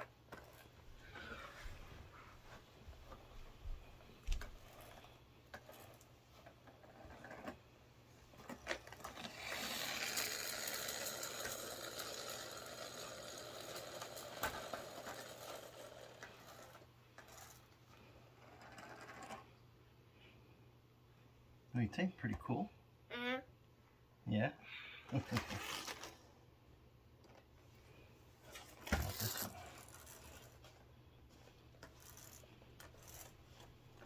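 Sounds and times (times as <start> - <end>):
toy car spring motor whirring: 8.8 - 17.6, 25.3 - 26.1, 28.9 - 30.6, 31.8 - 33.4.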